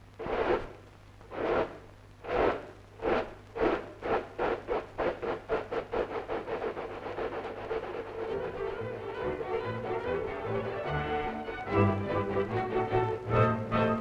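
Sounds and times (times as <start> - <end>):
steam locomotive exhaust chuffs: 0.0 - 11.1.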